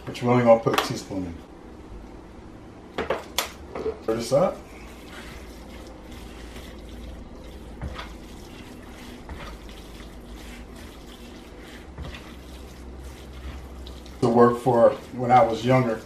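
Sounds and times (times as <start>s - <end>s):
wet squishing of stirred dressing: 3.2s - 16.0s
spatula scraping a bowl: 4.7s - 16.0s.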